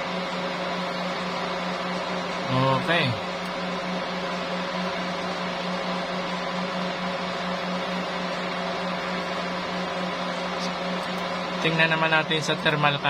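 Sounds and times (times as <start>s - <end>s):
pulsing mechanical hum: 0.0s - 13.0s.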